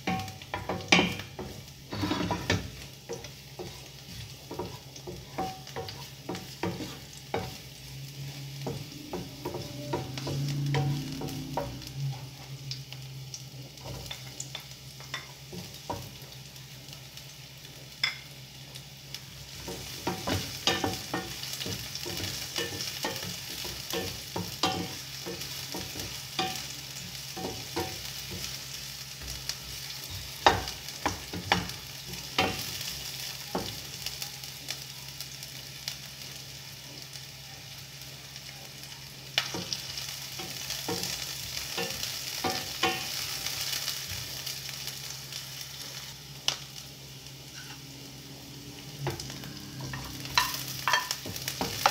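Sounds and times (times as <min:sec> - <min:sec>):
garlic and onion sizzling in a pan: 0:00.0 - 0:51.9
wooden spatula scraping a pan: 0:00.8 - 0:07.6, 0:47.5 - 0:47.9.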